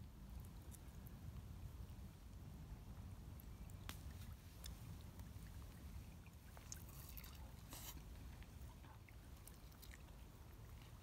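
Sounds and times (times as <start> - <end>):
low steady rumble: 0.0 - 11.0.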